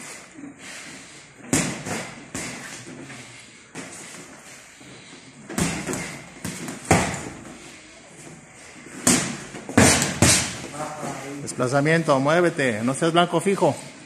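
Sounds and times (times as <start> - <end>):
punches thudding on boxing gloves: 5.5 - 7.4, 9.0 - 10.6.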